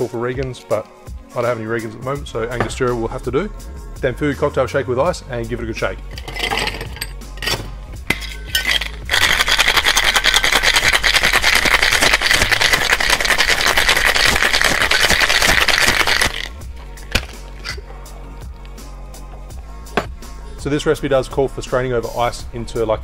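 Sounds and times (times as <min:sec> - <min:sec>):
ice rattling in shaker: 0:08.2 - 0:17.8
ice cubes clattering into glass: 0:08.5 - 0:16.5.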